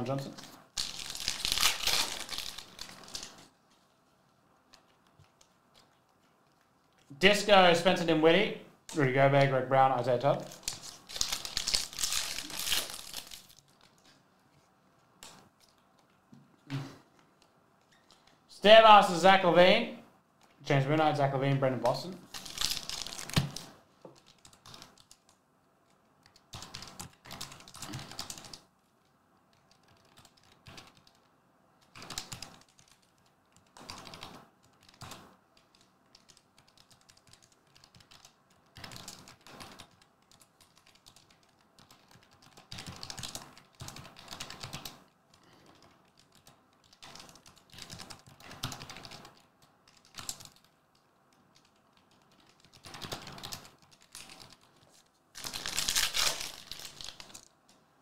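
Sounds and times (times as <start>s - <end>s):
foil wrapper rustling: 0.8s - 3.4s, 10.6s - 13.8s, 54.9s - 57.4s.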